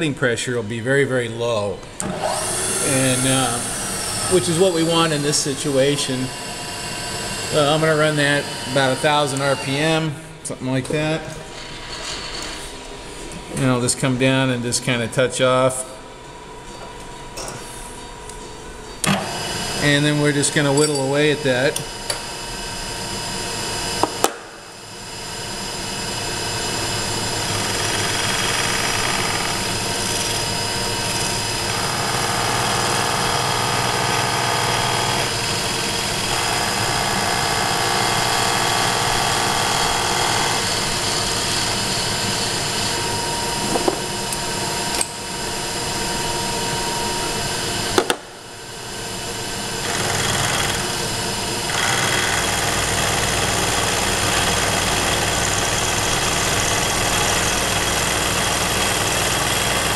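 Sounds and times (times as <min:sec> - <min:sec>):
milling machine cutting metal: 0:02.0 - 0:10.0, 0:24.8 - 0:48.1, 0:48.8 - 0:59.9.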